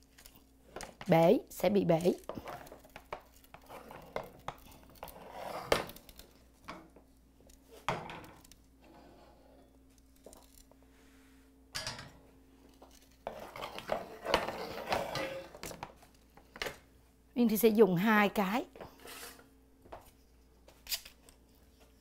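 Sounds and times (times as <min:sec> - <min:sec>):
metal spatula scraping sheet pan: 0:13.2 - 0:15.7, 0:19.0 - 0:19.4.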